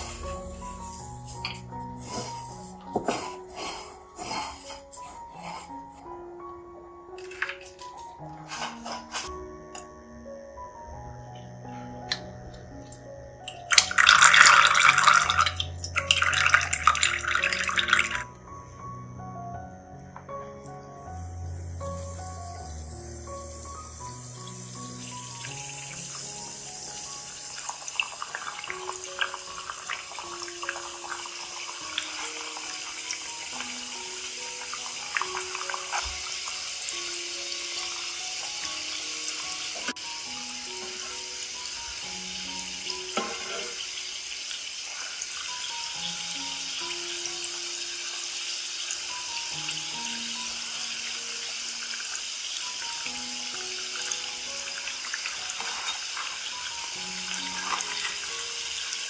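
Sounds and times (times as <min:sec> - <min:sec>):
oil sizzling in a pan: 0:00.0 - 0:05.7, 0:07.2 - 0:09.3, 0:20.3 - 0:59.0.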